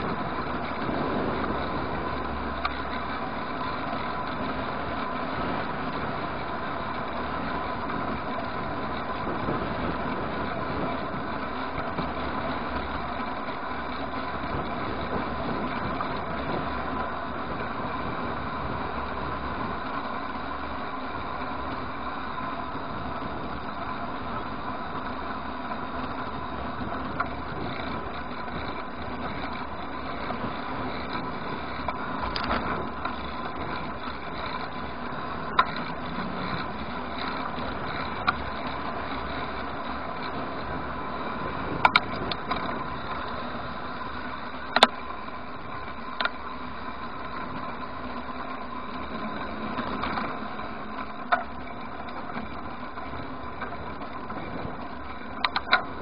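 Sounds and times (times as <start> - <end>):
wind noise: 0.0 - 13.2, 14.1 - 20.0
bicycle rolling: 0.0 - 56.0
bike rattling over bumps: 0.0 - 56.0.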